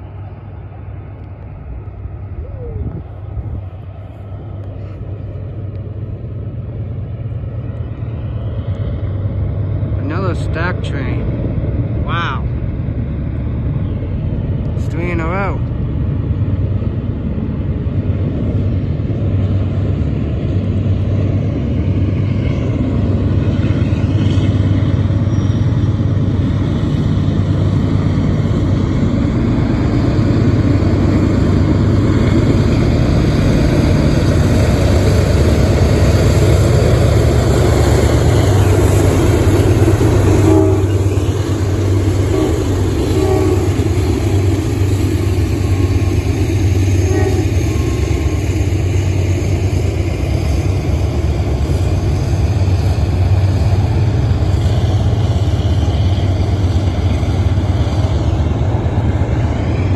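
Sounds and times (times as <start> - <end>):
diesel locomotive engines droning: 0.0 - 59.9.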